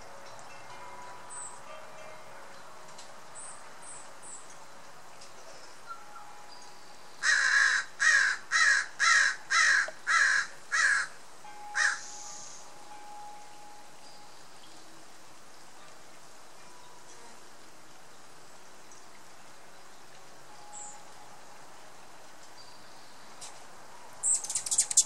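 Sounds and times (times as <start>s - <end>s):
steady background hiss: 0.0s - 25.0s
bird calling loudly: 11.8s - 12.4s
faint birdsong: 18.4s - 23.6s, 24.2s - 25.0s.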